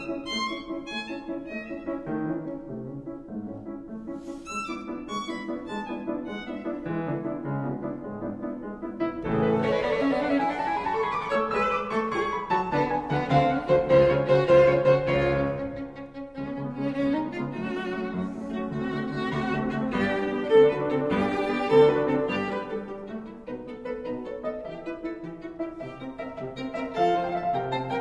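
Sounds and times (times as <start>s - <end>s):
piano: 0.0s - 28.0s
bowed strings: 9.2s - 28.0s.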